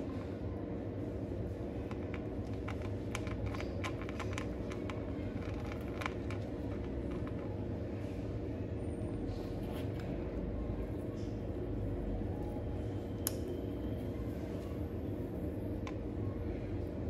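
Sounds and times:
low background hum: 0.0 - 17.0
kitten crunching dry kibble: 1.8 - 7.8.

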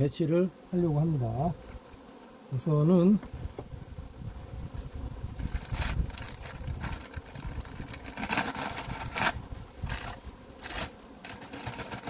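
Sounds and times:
plastic sheet crinkling: 5.4 - 12.0.

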